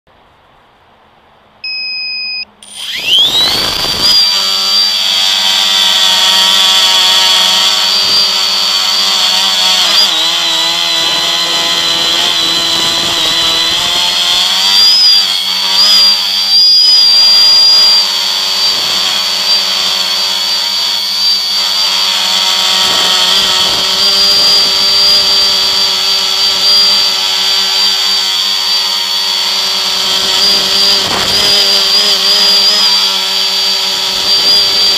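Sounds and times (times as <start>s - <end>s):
short beep: 1.6s - 2.8s
drone propellers whining: 1.6s - 34.9s.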